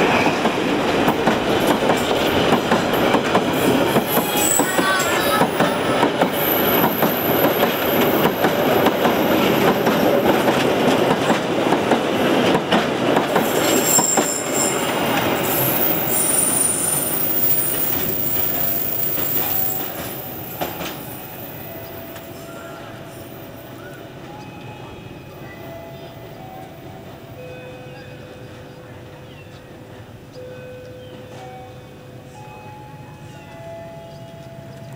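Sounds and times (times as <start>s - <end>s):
wheels clacking over rail joints: 0.0s - 22.4s.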